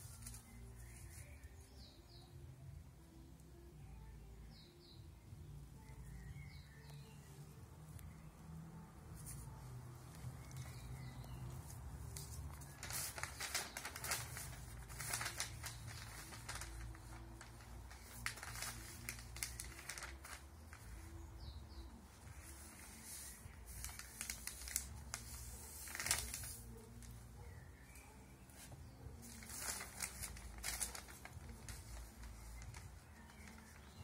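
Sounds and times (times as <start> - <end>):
newspaper rustling and crinkling: 0.0 - 1.4, 9.1 - 34.0.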